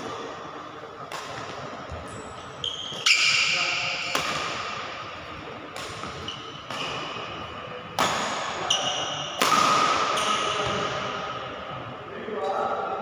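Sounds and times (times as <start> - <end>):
rackets hitting shuttlecock: 1.0 - 2.0, 2.7 - 11.1.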